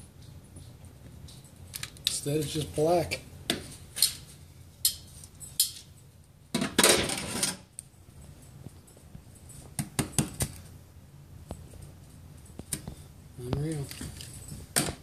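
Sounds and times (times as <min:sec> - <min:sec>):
light clicks and clinks: 0:00.1 - 0:02.7.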